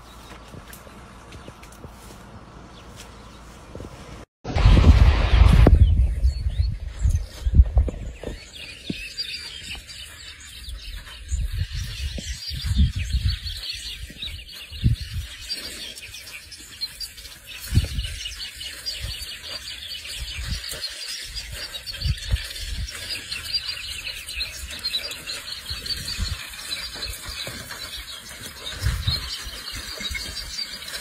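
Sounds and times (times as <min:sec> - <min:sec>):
birds chirping: 0:00.0 - 0:04.3, 0:05.7 - 0:31.0
low thumps: 0:04.5 - 0:08.4.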